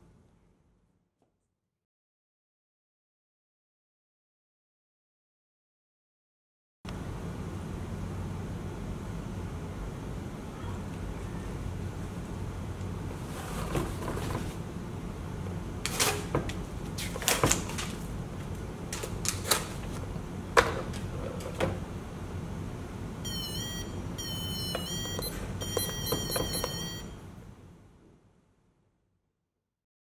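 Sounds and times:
electronic buzzer beeping tune: 23.2 - 27.2.

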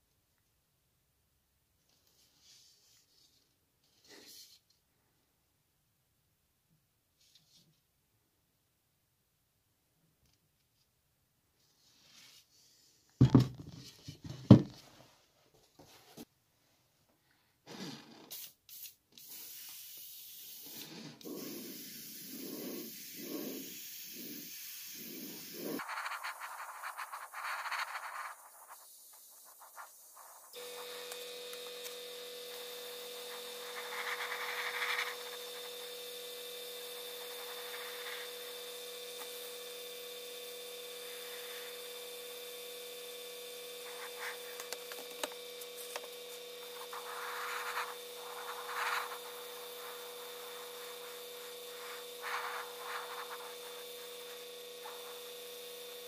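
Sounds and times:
airbrush hissing: 18.7 - 56.0.

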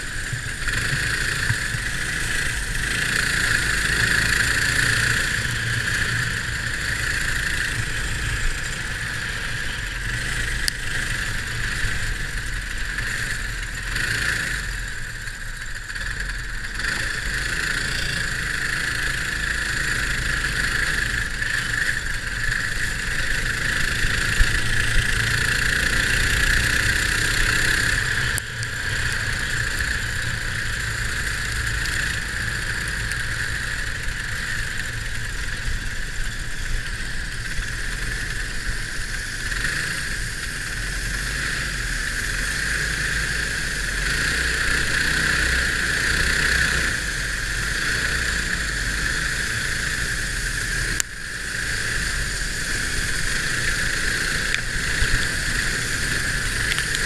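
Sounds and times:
go-kart engine racing: 0.0 - 57.0.

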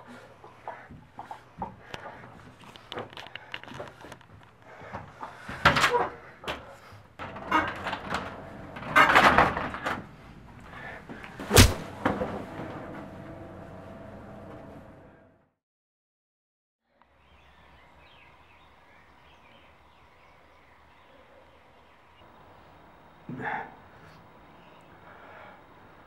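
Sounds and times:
sharp bang: 11.5 - 12.0.

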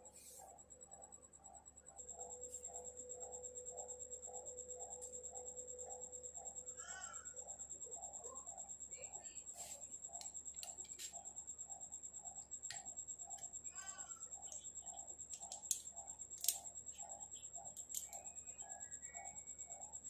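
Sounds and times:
faint high whine: 0.0 - 20.0
small metal clicks and taps: 10.2 - 11.1, 15.3 - 18.4.

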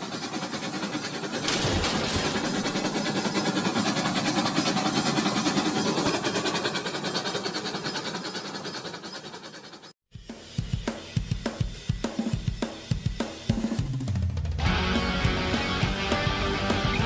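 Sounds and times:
train wheels clickety-clack: 0.0 - 10.0.

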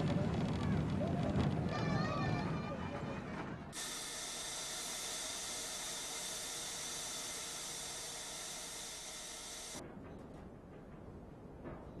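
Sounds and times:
steady hiss: 3.8 - 9.8.

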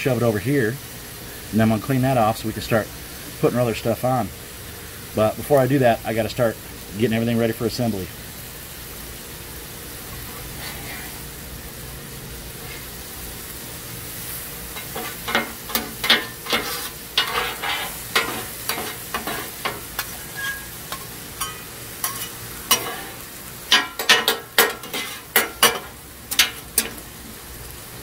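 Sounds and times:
food sizzling on griddle: 0.0 - 28.0
metal spatula scraping griddle: 10.1 - 11.3, 12.5 - 13.0, 14.7 - 27.0.

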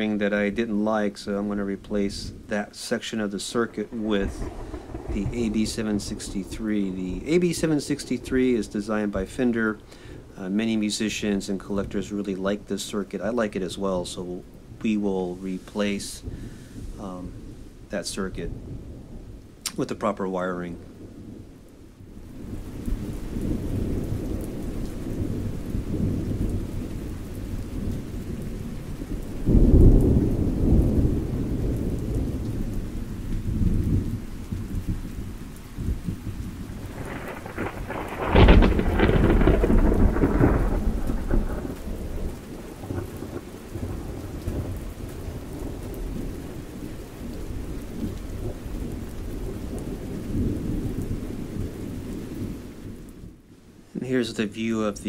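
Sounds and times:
low rumbling noise: 0.0 - 14.8, 36.1 - 43.0.

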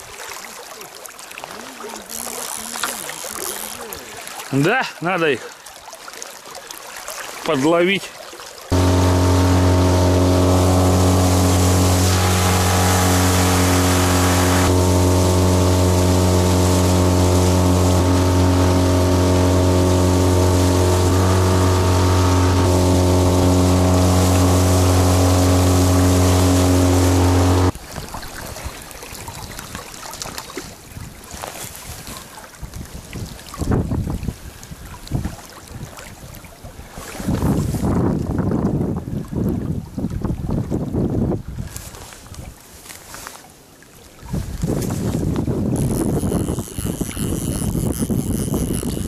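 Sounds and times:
outboard motor running: 1.9 - 4.2, 8.7 - 27.8, 45.0 - 49.0
wind buffeting microphone: 44.3 - 49.0.

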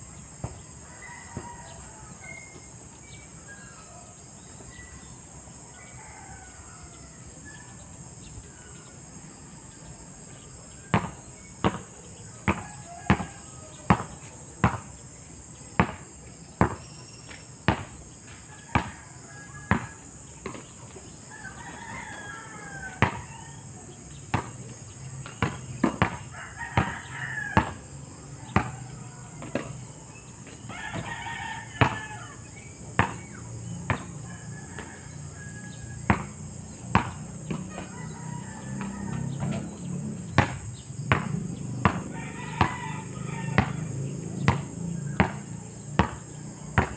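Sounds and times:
roosters crowing: 0.0 - 15.6, 16.4 - 46.9
basketball bouncing on asphalt: 0.3 - 0.7, 10.8 - 15.0, 15.7 - 20.8, 21.6 - 23.4, 24.1 - 35.0, 36.0 - 46.9.

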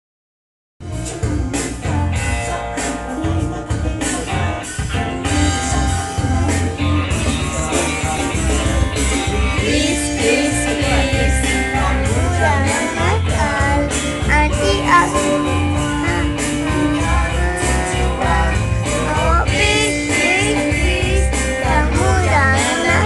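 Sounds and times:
music playing: 0.8 - 23.0
child singing: 9.6 - 23.0.

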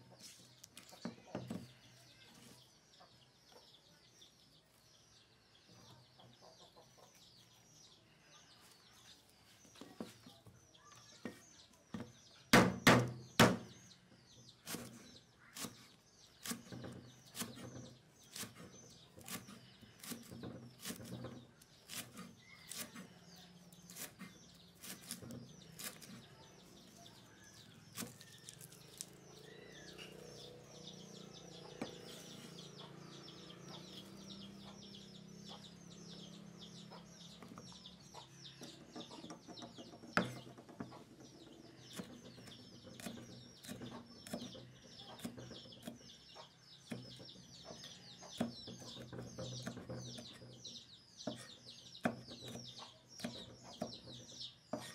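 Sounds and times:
birds chirping: 0.0 - 54.9
chickens clucking: 5.8 - 7.5, 28.6 - 43.1, 43.8 - 50.1, 52.7 - 54.2
knife chopping on wooden board: 27.6 - 29.1.

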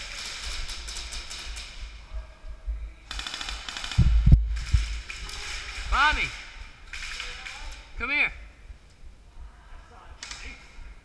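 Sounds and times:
airsoft guns firing bursts: 0.0 - 1.9, 3.1 - 7.9.

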